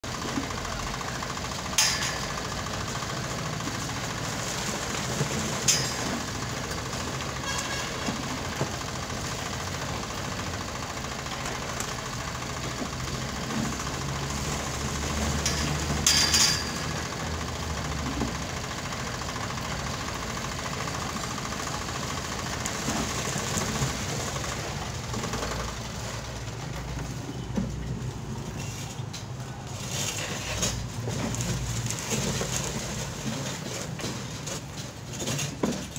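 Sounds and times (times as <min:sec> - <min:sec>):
small engine running: 0:00.1 - 0:35.9
loud clatter: 0:00.2 - 0:10.4, 0:11.0 - 0:19.7.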